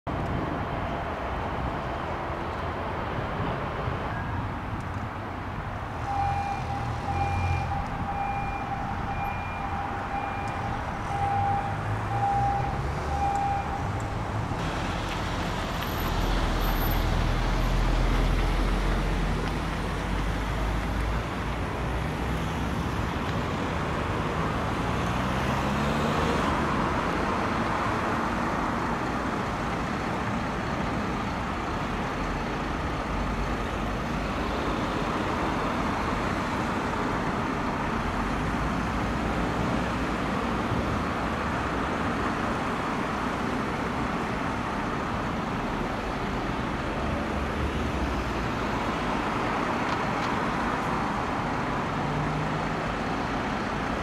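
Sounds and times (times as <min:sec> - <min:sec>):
high beeps: 0:06.1 - 0:14.1.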